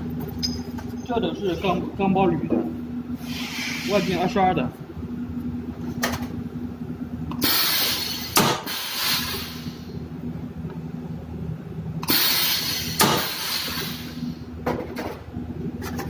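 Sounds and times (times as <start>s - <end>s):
compressed air hiss: 3.2s - 4.3s, 7.4s - 9.9s, 12.0s - 14.4s.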